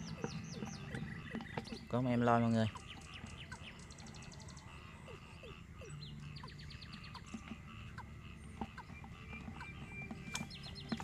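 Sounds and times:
rapid bird trills: 0.0s - 11.0s
small birds chirping: 0.0s - 11.0s.

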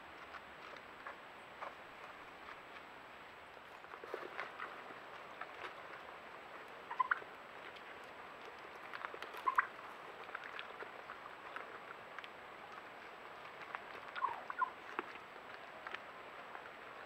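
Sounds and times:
wild turkeys calling: 6.8s - 7.3s, 8.7s - 10.0s, 14.1s - 14.8s.

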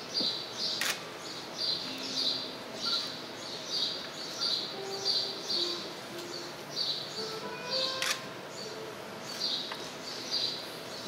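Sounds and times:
high-pitched chirping: 4.3s - 9.6s
faint low held notes: 4.4s - 9.5s.

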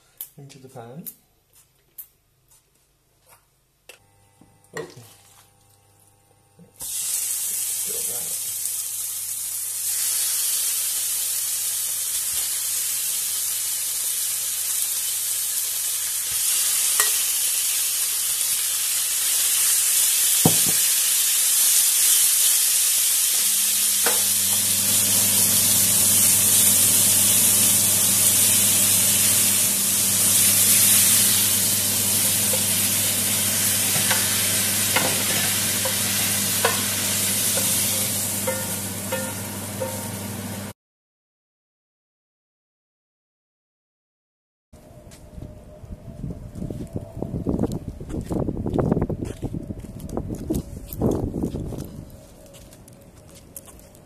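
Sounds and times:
chicken sizzling in a pan: 6.8s - 40.7s
metal spoon clinking on pan: 38.4s - 40.0s.

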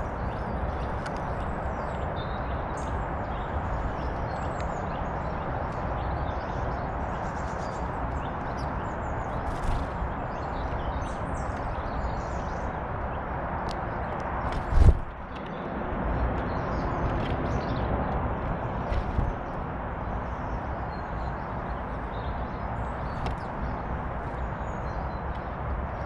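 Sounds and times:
songbirds chirping: 0.0s - 26.0s
rustle: 14.5s - 15.2s.

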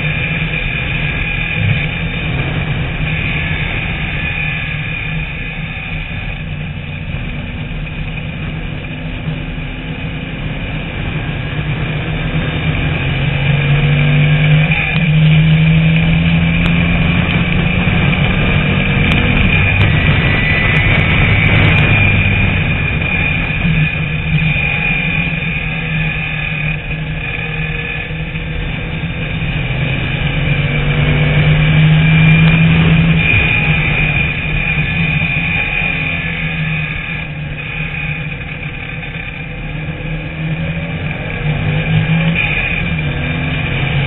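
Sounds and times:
race car engine at speed: 0.0s - 44.0s.

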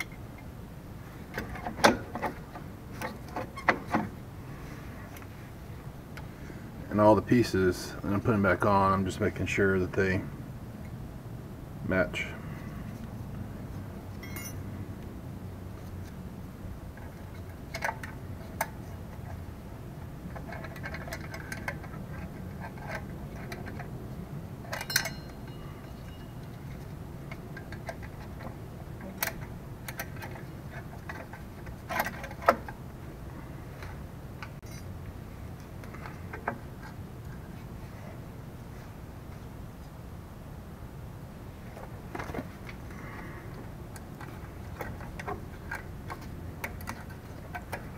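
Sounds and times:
metallic clicks of brake parts: 24.7s - 32.8s.

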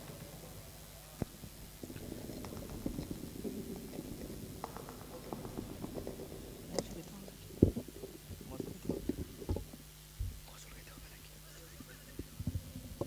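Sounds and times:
faint sound system hum: 0.0s - 13.0s
microphone handling noise: 1.2s - 10.5s.

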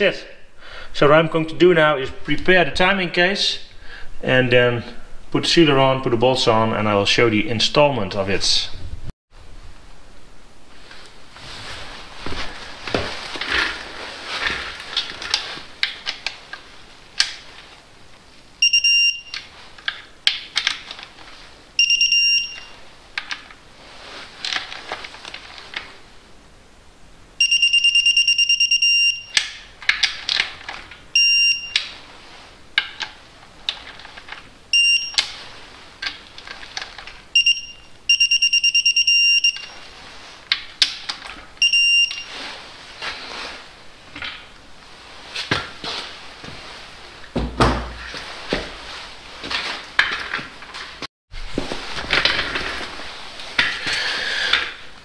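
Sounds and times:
electronic torque wrench beeping: 18.6s - 19.4s, 21.8s - 22.7s, 27.4s - 29.4s, 31.2s - 31.8s, 34.7s - 35.2s, 37.4s - 39.8s, 41.6s - 42.3s.

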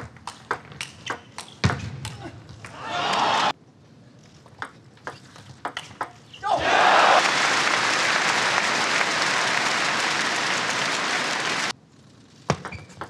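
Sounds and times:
crowd applauding: 6.7s - 11.7s.

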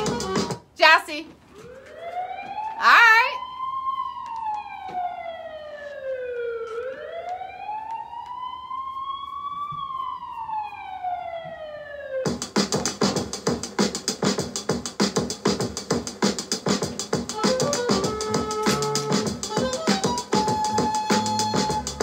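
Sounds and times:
hip-hop drum beat: 0.0s - 0.7s, 12.3s - 22.0s
wailing siren: 1.4s - 12.3s, 17.3s - 22.0s.

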